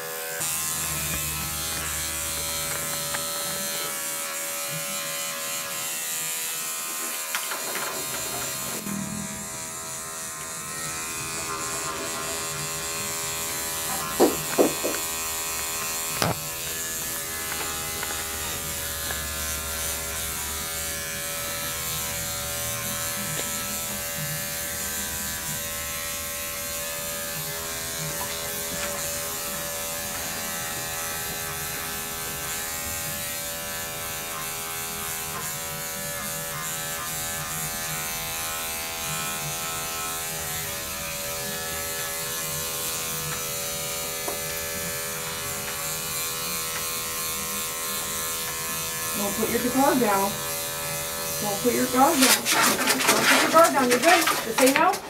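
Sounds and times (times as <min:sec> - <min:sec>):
electric clipper buzzing: 0:00.0 - 0:55.0.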